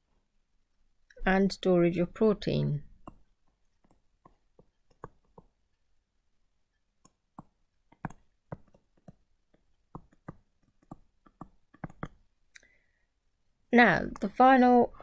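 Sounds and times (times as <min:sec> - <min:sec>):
stylus tapping on tablet: 0:03.0 - 0:05.7, 0:07.0 - 0:12.3.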